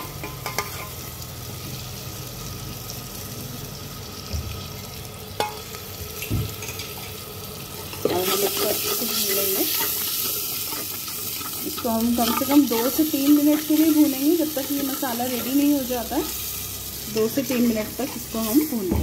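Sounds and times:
tomato sizzling in hot oil: 0:00.0 - 0:19.0.

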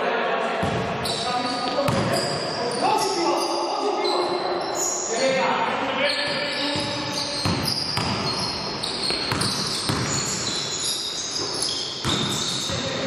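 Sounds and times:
basketball bouncing on court: 0:00.6 - 0:02.5, 0:06.3 - 0:13.0.

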